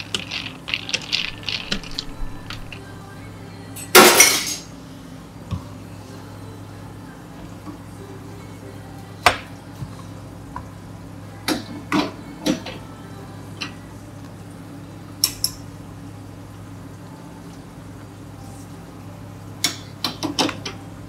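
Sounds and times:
metal container clinking: 0:00.0 - 0:03.0
steady low hum: 0:00.0 - 0:19.7.

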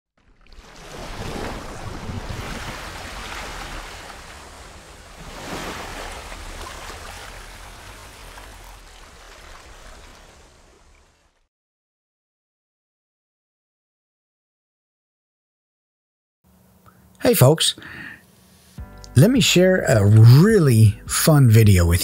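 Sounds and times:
rushing splashing water: 0:00.2 - 0:11.5.

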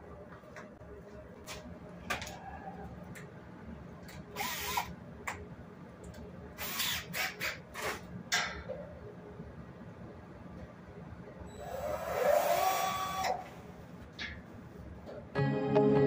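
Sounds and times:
cordless drill bursts: 0:04.4 - 0:04.9, 0:06.6 - 0:07.5, 0:11.8 - 0:13.4.

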